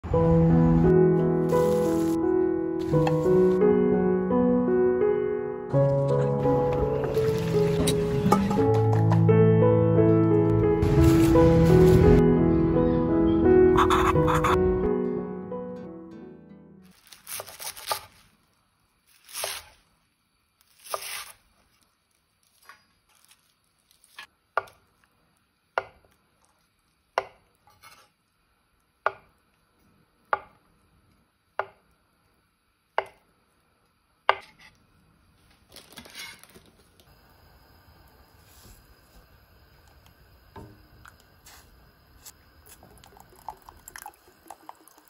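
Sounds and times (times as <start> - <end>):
knife chopping on cutting board: 34.3 - 34.7.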